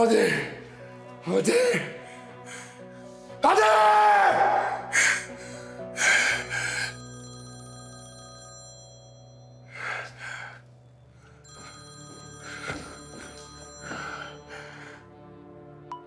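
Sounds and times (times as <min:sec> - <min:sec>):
phone ringing: 0:06.7 - 0:09.8, 0:11.4 - 0:14.7.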